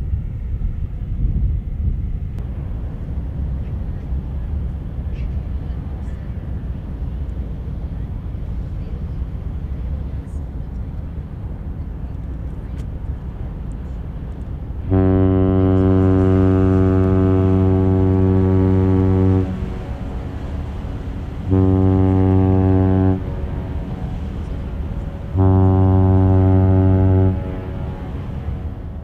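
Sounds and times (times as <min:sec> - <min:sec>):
ship whistle blasts: 0:14.8 - 0:29.0.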